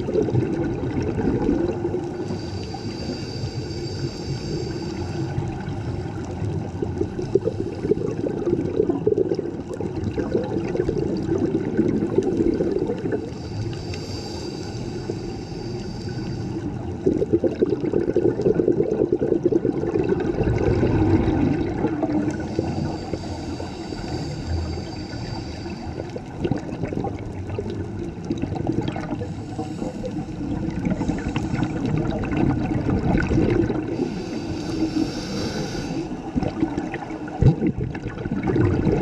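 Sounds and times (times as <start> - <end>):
underwater rushing and gurgling: 0.0 - 39.0
high hiss: 13.3 - 16.6, 22.4 - 26.1, 34.0 - 36.3.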